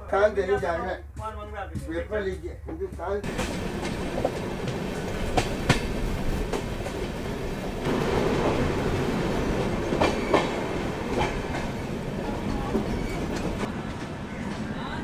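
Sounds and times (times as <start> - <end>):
train wheels rumbling on rail: 0.3 - 15.0
wheels clacking over rail joints: 3.2 - 14.7.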